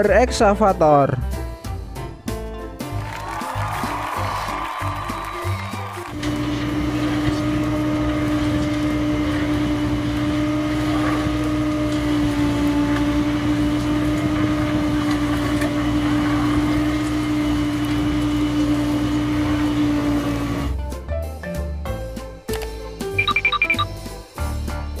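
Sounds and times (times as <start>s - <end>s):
excavator auger drilling soil: 6.1s - 20.8s.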